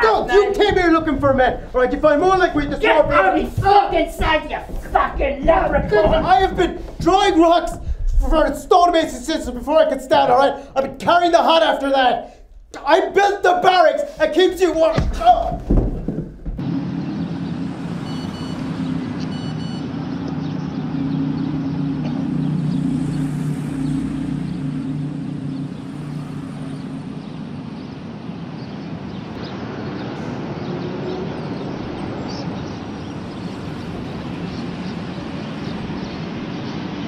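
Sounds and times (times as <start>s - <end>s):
rumble of passing vehicles: 0.0s - 7.1s, 16.6s - 37.0s
short electronic beeps: 18.0s - 18.6s, 19.3s - 19.9s.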